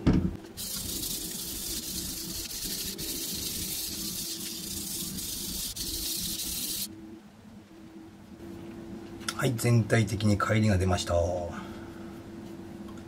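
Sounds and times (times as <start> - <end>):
knife grinding on whetstone: 0.6 - 6.9.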